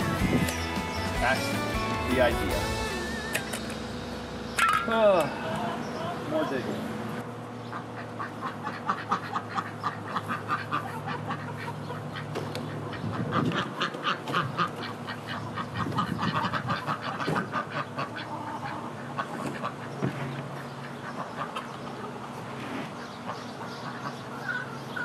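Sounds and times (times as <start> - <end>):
ducks quacking: 5.3 - 25.0.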